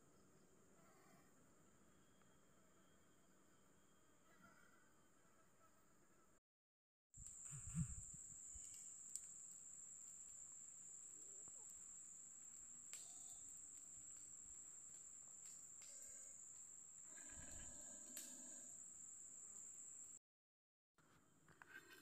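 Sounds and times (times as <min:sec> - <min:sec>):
insect chorus drone: 0:07.2 - 0:20.2.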